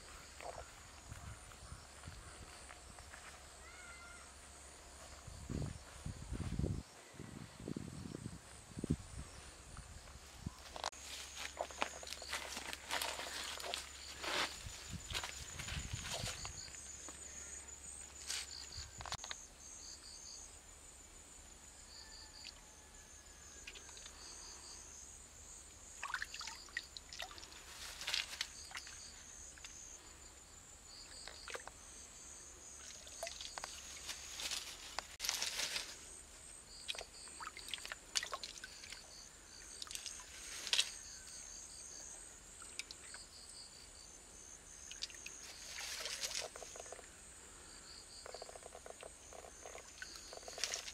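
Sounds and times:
insects droning and chirping: 0.0s - 50.9s
splashing in shallow stream: 26.0s - 29.1s, 32.7s - 36.0s, 36.7s - 40.8s, 44.8s - 47.0s.

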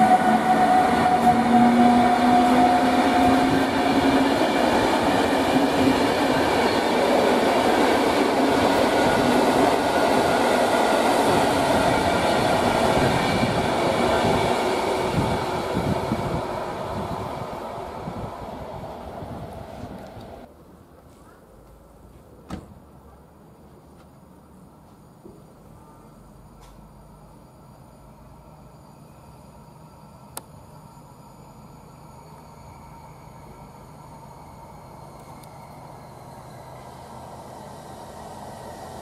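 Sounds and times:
electric locomotive whine: 0.0s - 20.5s, 24.5s - 39.0s
train coaches rumbling on rails: 0.0s - 20.5s.

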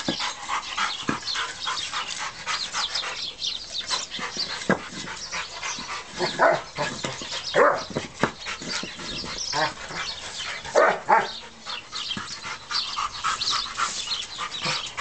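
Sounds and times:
dog barking and whining: 7.5s - 7.9s, 10.7s - 11.4s.

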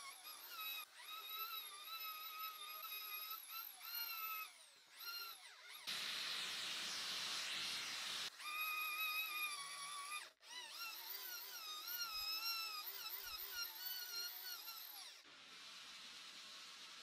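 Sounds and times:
rotary tool whining on steel: 0.0s - 15.3s
gas torch hissing: 5.9s - 8.3s.

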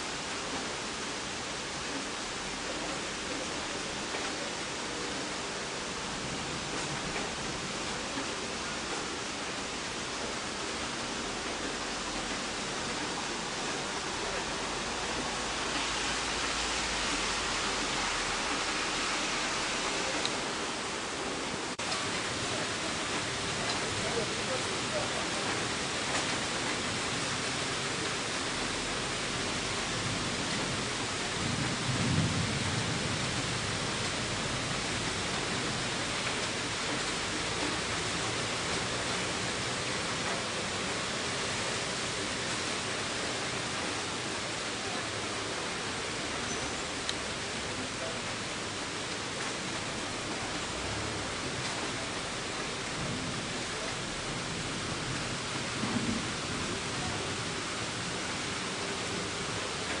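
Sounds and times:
heavy rain: 0.0s - 60.0s
distant thunder rumble: 28.5s - 38.5s, 50.9s - 58.5s.

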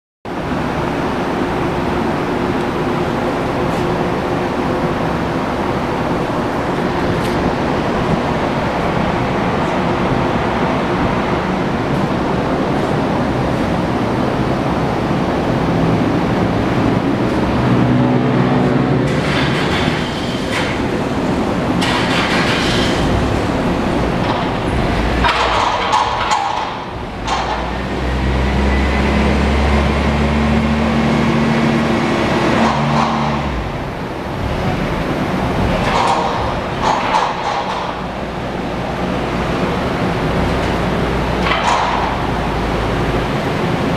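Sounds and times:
workshop background rumble: 0.3s - 43.9s.

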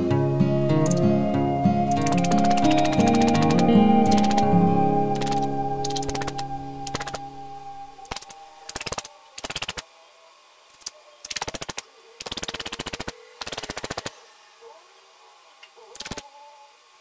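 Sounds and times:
held musical tone: 0.0s - 8.7s.

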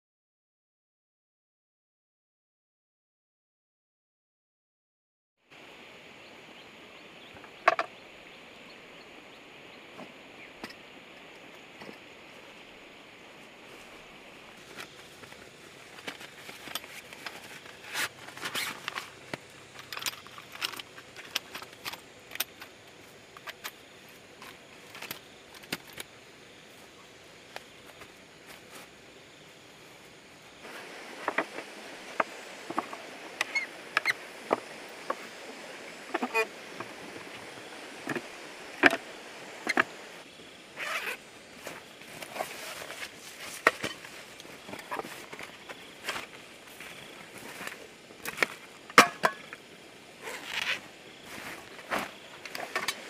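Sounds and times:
zips and buckles clicking: 16.1s - 22.7s, 40.8s - 43.7s, 50.2s - 53.0s
nylon fabric rustling: 40.8s - 47.8s, 50.2s - 52.3s.

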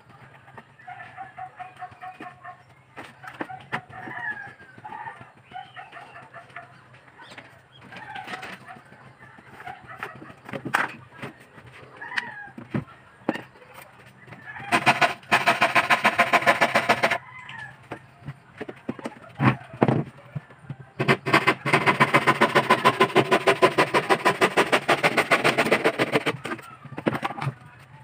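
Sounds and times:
chickens clucking: 0.0s - 28.0s
handsaw cutting plywood: 14.7s - 17.2s, 21.0s - 26.6s.

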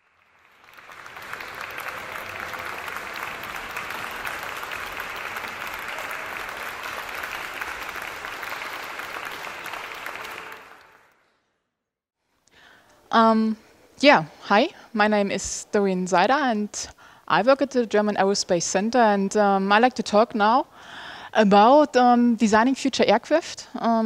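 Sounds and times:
audience clapping: 0.0s - 11.2s.

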